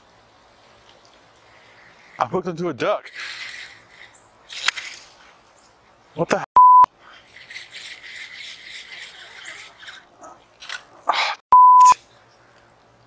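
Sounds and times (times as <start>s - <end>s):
censor bleep: 6.6s - 6.9s, 11.5s - 12.0s
fishing reel whirring: 7.2s - 10.0s.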